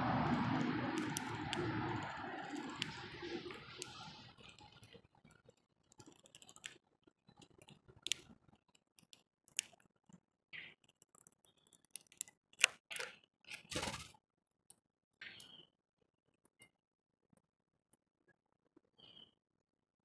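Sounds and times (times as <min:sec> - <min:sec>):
bird pecking seed: 0:00.3 - 0:04.9, 0:05.9 - 0:06.8, 0:07.4 - 0:08.4.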